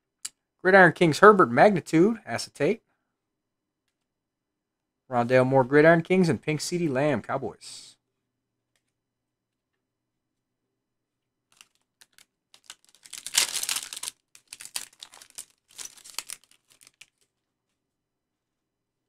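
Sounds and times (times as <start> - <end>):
plastic wrapper crinkling: 11.5 - 17.4.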